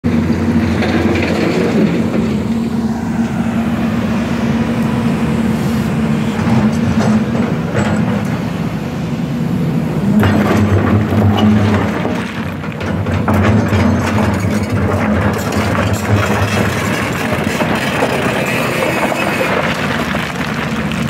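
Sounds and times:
excavator diesel engine: 0.0 - 21.0
rock clattering and scraping: 10.1 - 21.0.

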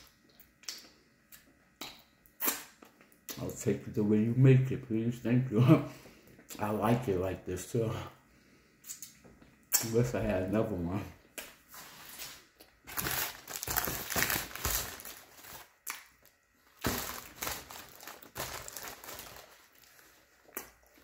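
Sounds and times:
paper wrapper crinkling: 12.2 - 20.6.

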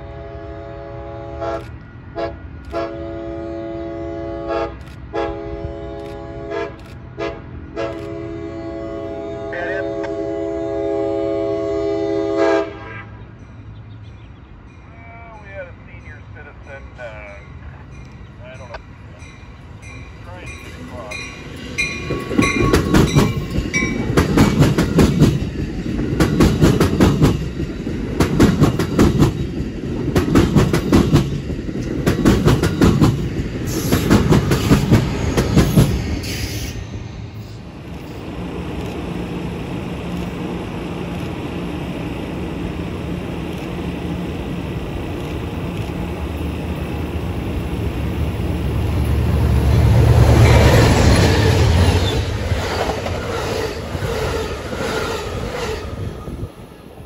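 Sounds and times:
train rumbling: 0.0 - 57.0
train wheels clattering over joints: 21.8 - 36.6.

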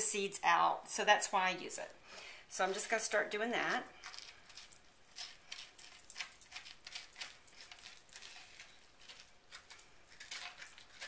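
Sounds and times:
spoon scraping squash: 2.6 - 11.0.

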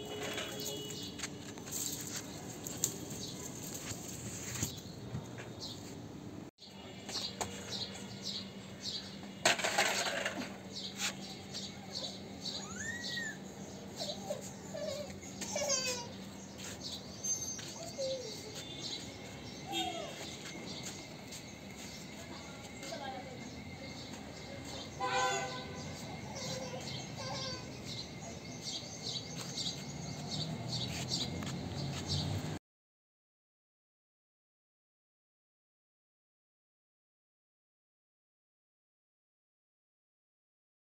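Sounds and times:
small birds chirping: 10.7 - 32.6.

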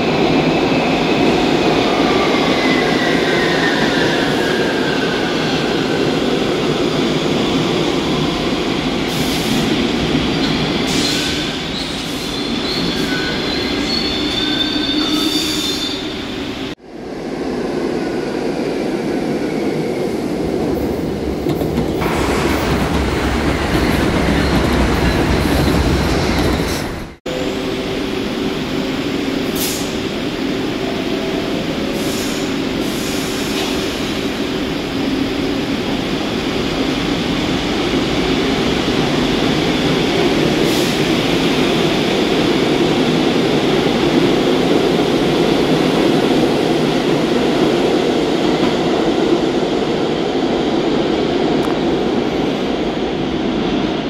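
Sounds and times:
subway train rumbling: 0.0 - 54.0.

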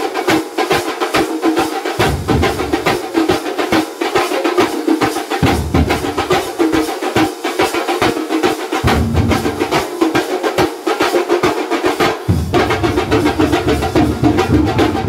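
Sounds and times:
drum troupe playing fast rhythm: 0.0 - 15.0
deep heavy drum strikes: 2.0 - 2.9.

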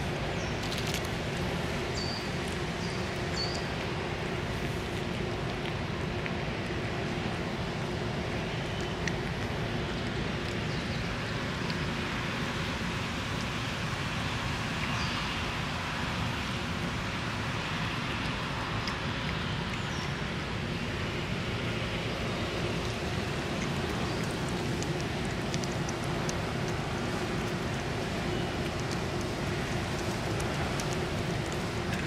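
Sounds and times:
road traffic rumble: 0.0 - 32.0
cat chewing from metal bowl: 21.6 - 32.0.

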